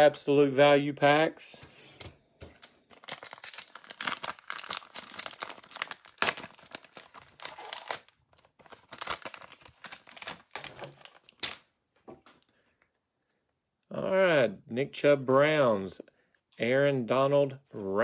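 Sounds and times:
foil wrapper crinkling and tearing: 2.6s - 11.7s.

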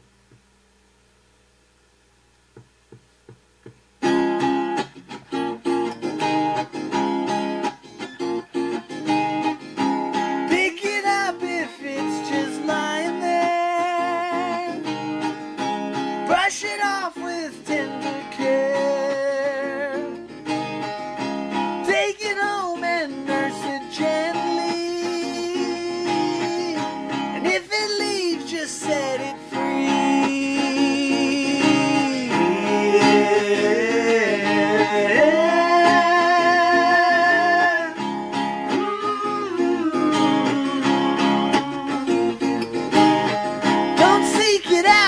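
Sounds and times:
strummed acoustic guitar: 2.6s - 45.0s
person singing: 10.4s - 15.1s, 16.2s - 20.4s, 21.8s - 45.0s.

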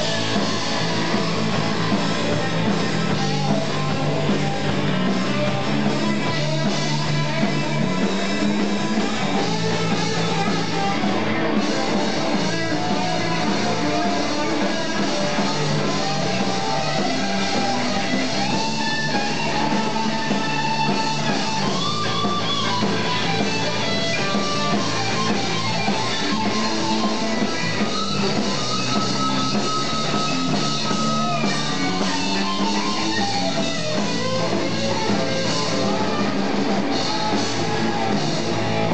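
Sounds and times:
drums: 0.0s - 38.9s
electric guitar bending lead notes: 0.0s - 38.9s.

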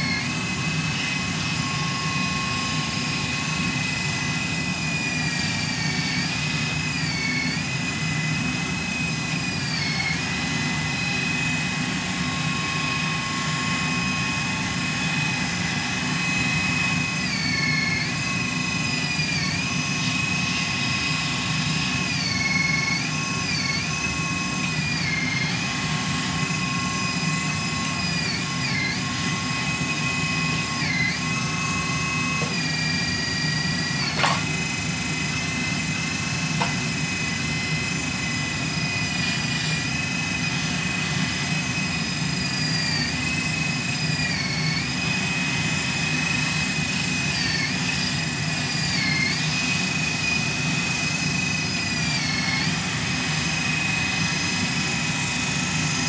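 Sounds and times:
high hydraulic whine: 0.0s - 56.0s
motor and pump hum: 0.0s - 56.0s.

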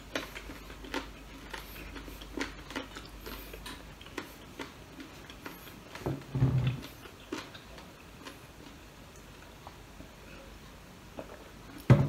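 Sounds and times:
chewing: 0.0s - 11.9s.

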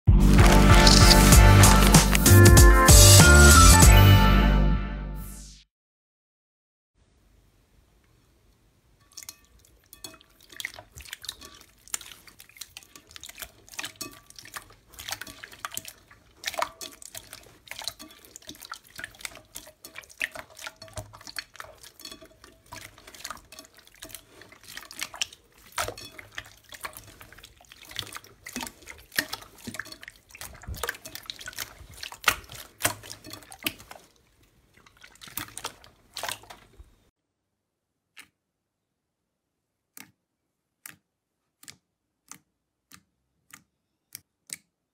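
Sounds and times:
slime squelching: 0.1s - 3.6s, 9.1s - 37.1s
sticky slime clicks: 40.0s - 40.2s, 40.8s - 44.7s.

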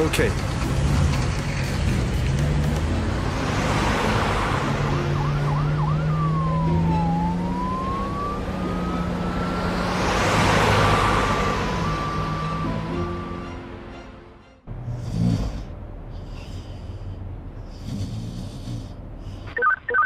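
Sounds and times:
rushing noise of truck passing: 0.0s - 19.6s
low engine hum: 0.0s - 20.0s
cartoon fire engine siren: 4.9s - 13.6s, 19.6s - 20.0s.

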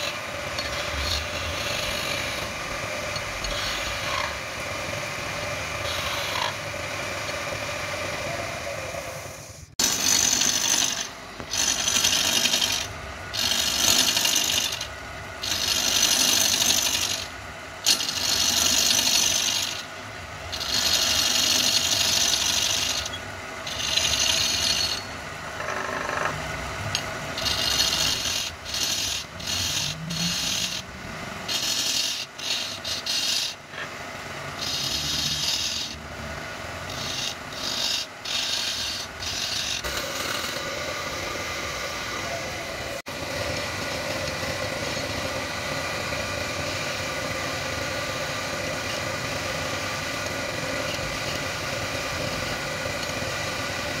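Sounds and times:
gouge cutting spinning wood: 0.0s - 54.0s
wood lathe humming: 0.0s - 54.0s.

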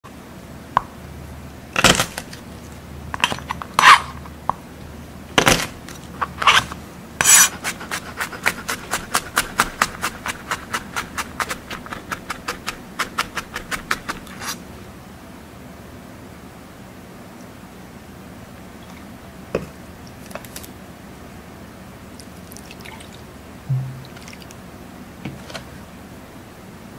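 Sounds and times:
knife chopping on cutting board: 7.2s - 14.3s.

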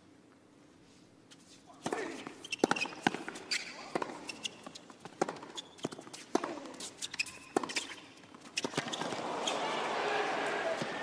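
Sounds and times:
shoes squeaking on hard court: 1.3s - 9.6s
tennis ball hit by rackets: 5.1s - 6.8s.

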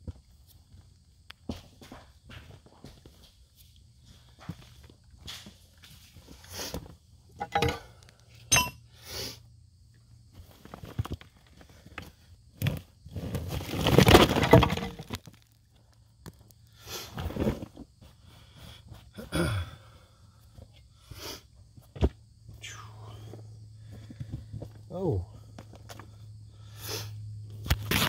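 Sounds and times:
rock and dirt crumbling: 10.2s - 18.0s, 27.6s - 28.0s.

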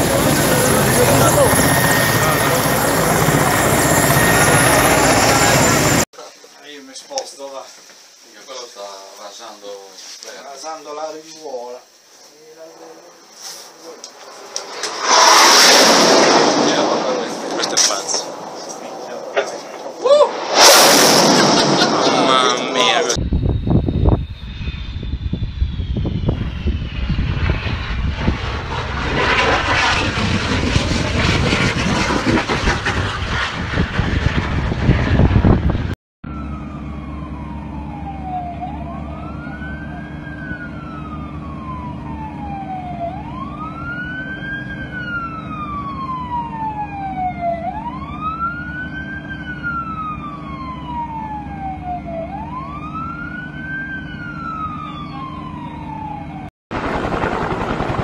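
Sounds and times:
emergency siren wailing: 0.0s - 6.0s, 36.2s - 58.0s
jet aircraft roar: 0.0s - 6.1s, 12.8s - 58.0s.

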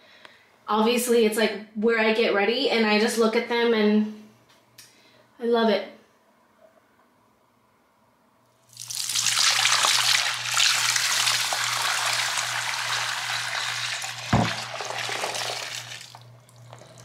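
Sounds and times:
water pouring into a sink: 8.7s - 17.0s
knock: 14.3s - 14.6s.

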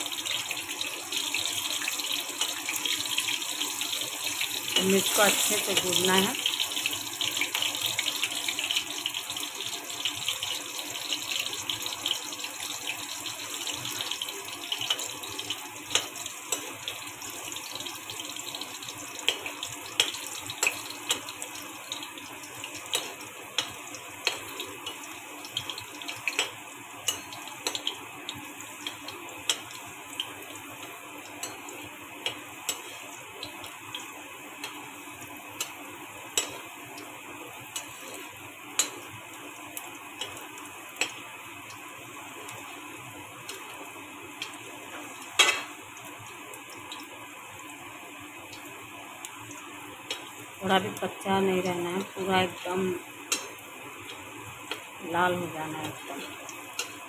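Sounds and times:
chillies sizzling in hot oil: 0.0s - 57.0s.

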